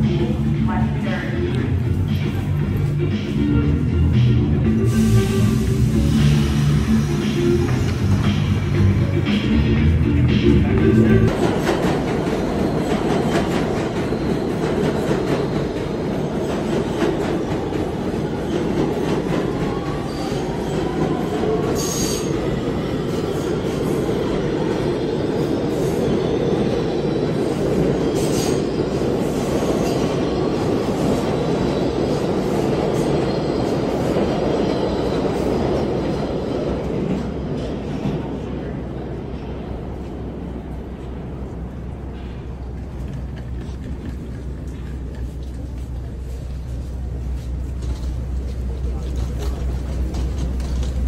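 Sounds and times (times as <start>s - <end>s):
subway train rumbling: 0.0s - 51.0s
wheels squealing on rails: 18.2s - 24.2s, 25.7s - 35.6s.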